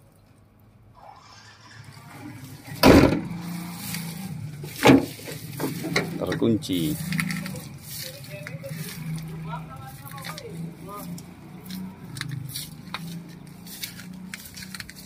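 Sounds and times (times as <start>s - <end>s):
rustling through undergrowth: 1.1s - 15.0s
loud thuds: 2.8s - 3.4s, 4.7s - 6.2s.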